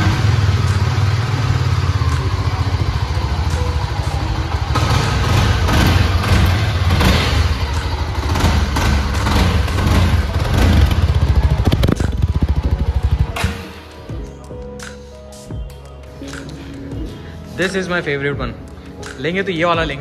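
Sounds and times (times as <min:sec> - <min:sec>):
motorcycle engine running: 0:00.0 - 0:14.3.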